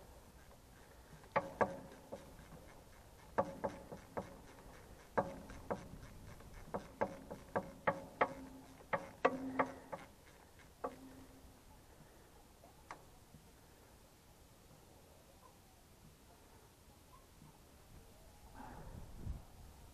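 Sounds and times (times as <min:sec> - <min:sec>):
ratchet wrench clicking: 0:00.3 - 0:11.3.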